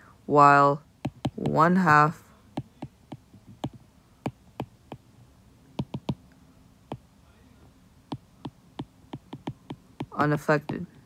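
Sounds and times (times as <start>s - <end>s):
stylus tapping on glass screen: 1.0s - 1.6s, 2.6s - 5.0s, 5.8s - 6.2s, 8.1s - 10.8s.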